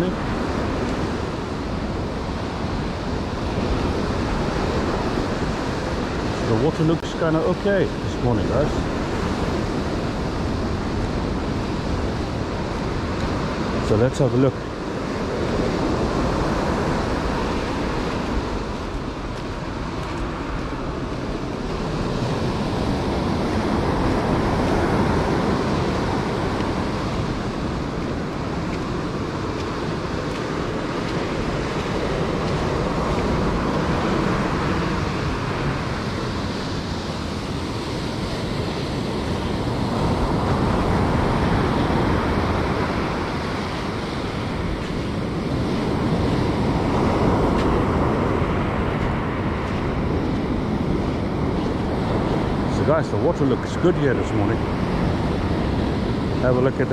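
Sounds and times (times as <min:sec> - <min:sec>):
ocean surf breaking on beach: 0:00.0 - 0:56.9.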